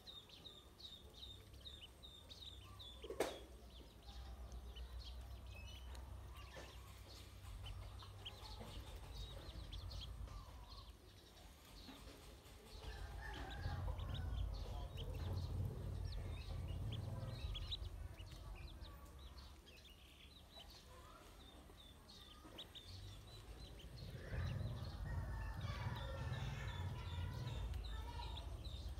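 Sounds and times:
ducklings peeping: 0.0s - 28.9s
low rumble: 4.1s - 10.9s, 12.7s - 20.3s, 22.8s - 28.9s.

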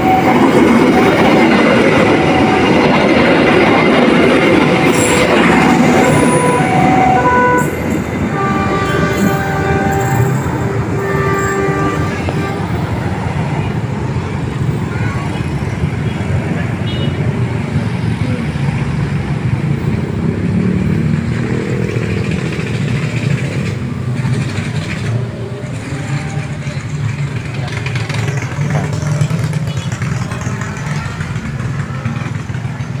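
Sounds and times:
road vehicle engines rumbling: 0.0s - 33.0s
motorcycles: 13.5s - 33.0s.

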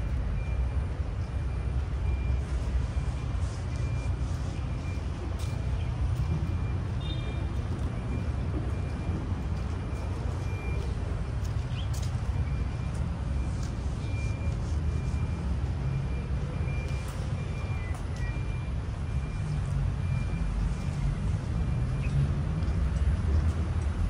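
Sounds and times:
high electronic beep: 0.3s - 22.3s.

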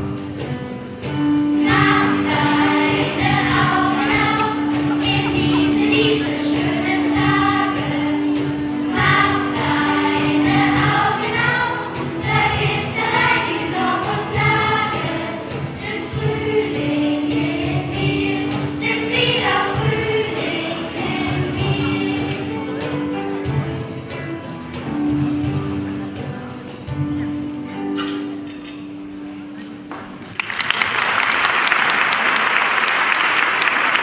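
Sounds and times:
children's choir singing: 1.3s - 26.3s.

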